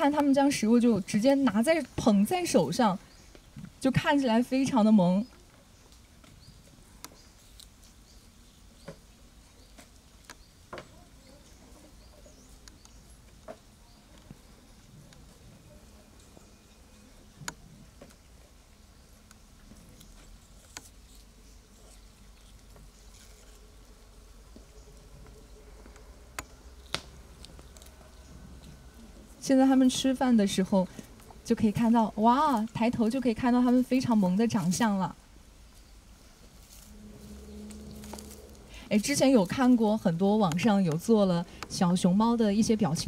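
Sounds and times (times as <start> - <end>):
small birds chirping: 0.1 - 23.9.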